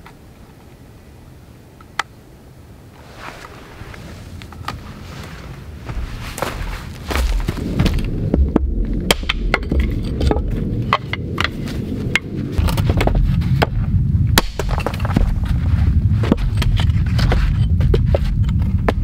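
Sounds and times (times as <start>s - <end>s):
low rumble: 3.0s - 19.0s
dry branches cracking: 4.4s - 10.7s.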